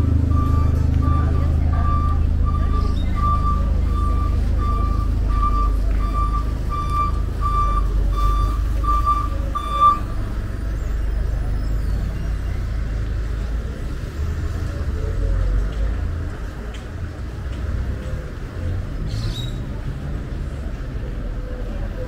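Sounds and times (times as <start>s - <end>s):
vehicle reversing alarm beeping: 0.0s - 12.7s
low engine rumble: 0.0s - 22.0s.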